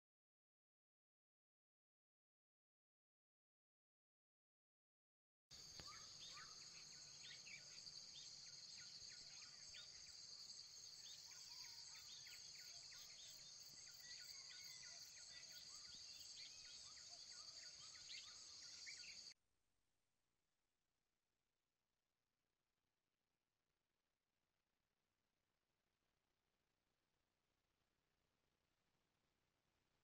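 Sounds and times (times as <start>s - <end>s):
bird chirps: 5.6s - 19.4s
insects droning: 5.6s - 19.4s.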